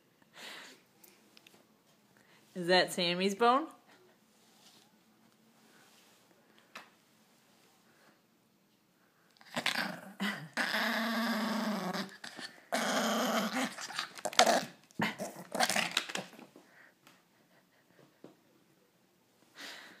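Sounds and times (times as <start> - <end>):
small dog growling: 9.4 - 16.3.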